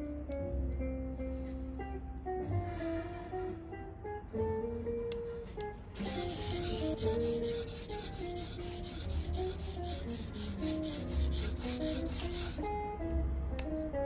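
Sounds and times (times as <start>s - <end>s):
guitar music: 0.0s - 13.8s
knife scraping on whetstone: 6.0s - 12.7s.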